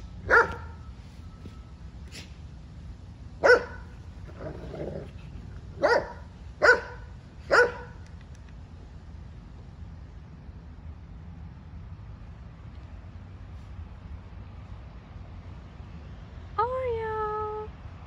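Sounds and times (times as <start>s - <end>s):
dog barking: 0.3s - 0.7s, 3.4s - 3.9s, 5.8s - 8.0s
dog growling: 4.2s - 5.5s.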